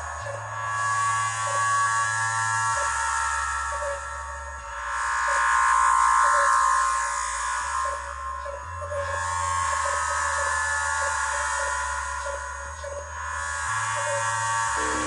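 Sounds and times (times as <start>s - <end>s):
buzzy resonant synth tone: 14.7s - 15.0s
synthesizer bass line: 14.8s - 15.0s.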